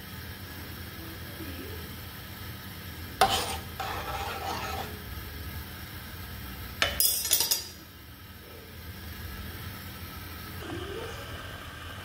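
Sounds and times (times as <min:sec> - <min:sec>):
metal spoon scraping skillet: 0:03.2 - 0:05.1.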